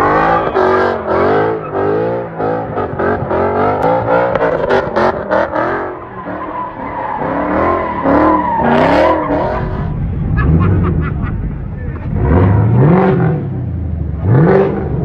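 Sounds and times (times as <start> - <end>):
car engine revving: 0.0 - 15.0
tyres squealing on pavement: 5.8 - 10.0.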